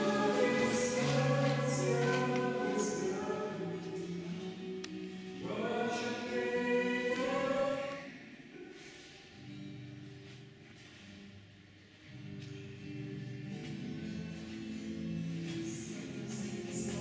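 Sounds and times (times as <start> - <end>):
choir singing held chords: 0.0 - 8.6.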